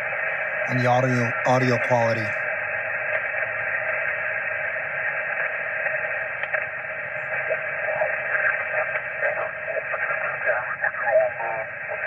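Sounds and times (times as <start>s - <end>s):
radio static hiss: 0.0s - 12.0s
wavering garbled radio tones: 0.7s - 2.4s.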